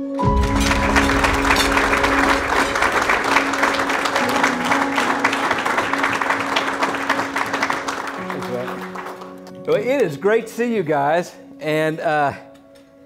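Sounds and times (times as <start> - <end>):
background music steady tones: 0.0 - 13.0
audience applauding: 0.2 - 10.2.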